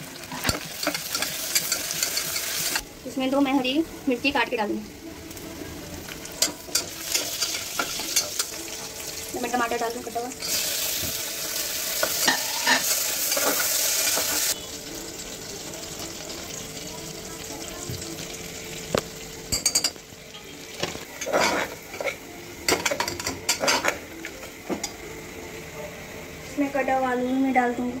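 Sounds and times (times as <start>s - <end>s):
vegetables sizzling in oil: 0.0s - 28.0s
metal spatula scraping pot: 0.3s - 2.8s, 12.0s - 14.6s, 21.2s - 22.2s.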